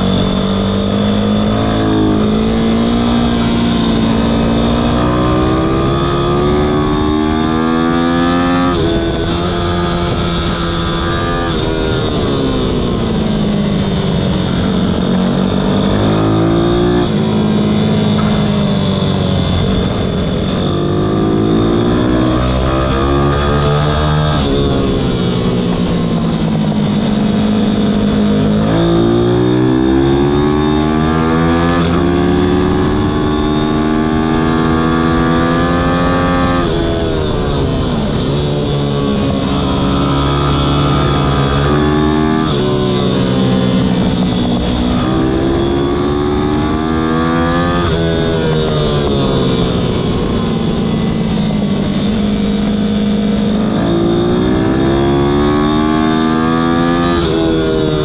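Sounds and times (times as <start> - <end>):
minibike engine revving: 0.0 - 12.4.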